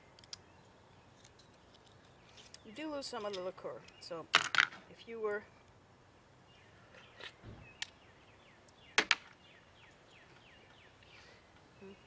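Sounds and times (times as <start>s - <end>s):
shells and knife clicking on wood: 0.1s - 0.4s.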